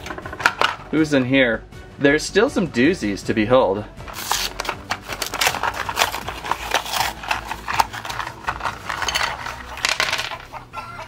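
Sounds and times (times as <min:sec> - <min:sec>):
cardboard box being torn open: 0:04.1 - 0:08.1
paper rustling: 0:04.1 - 0:10.4.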